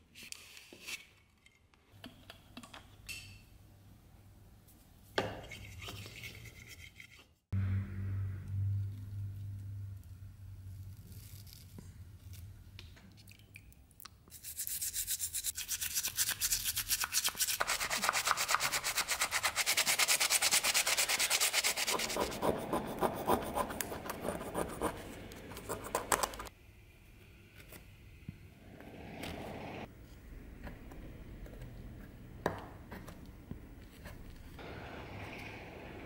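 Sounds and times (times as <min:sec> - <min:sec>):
toothbrush scrubbing metal part: 0:14.4 - 0:26.5.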